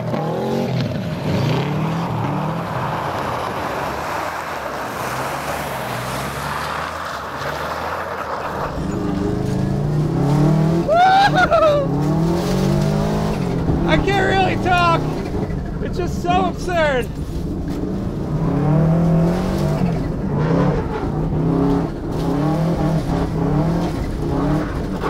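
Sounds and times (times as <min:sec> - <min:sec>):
rally engine revving: 0:00.0 - 0:25.0
engine drone inside car: 0:08.6 - 0:25.0.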